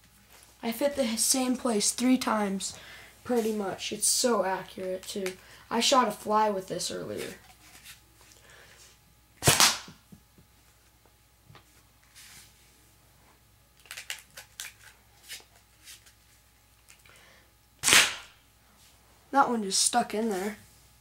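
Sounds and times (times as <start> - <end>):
paper rifle shots: 9.4 - 9.9, 17.8 - 18.4.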